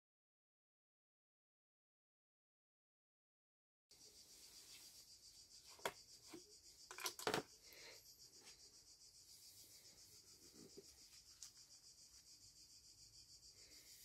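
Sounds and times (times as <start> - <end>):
insects chirring: 3.9 - 14.0
plastic bottle handling knocks: 6.9 - 7.4.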